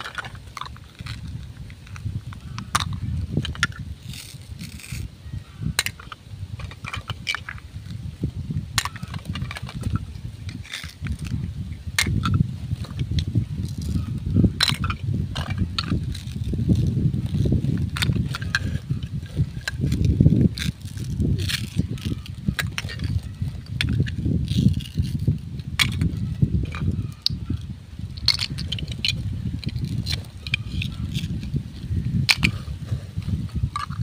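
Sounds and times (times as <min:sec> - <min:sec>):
plastic toy pieces clicking: 0:00.0 - 0:05.1, 0:05.8 - 0:07.6, 0:12.0 - 0:27.4, 0:28.2 - 0:31.5, 0:32.3 - 0:32.6, 0:33.7 - 0:34.0.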